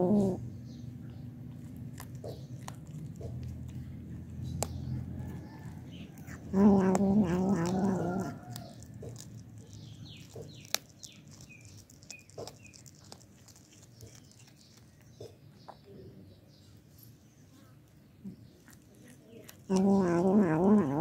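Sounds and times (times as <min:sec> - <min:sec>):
kitten growling: 0:00.0 - 0:00.6, 0:01.4 - 0:14.8, 0:19.0 - 0:21.0
kitten chewing clicks: 0:01.1 - 0:15.7.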